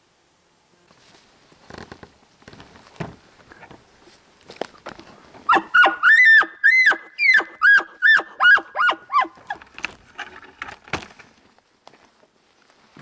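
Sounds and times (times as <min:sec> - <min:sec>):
footsteps on forest floor: 0:02.6 - 0:05.4, 0:09.2 - 0:13.0
high-pitched animal calls: 0:05.5 - 0:09.6.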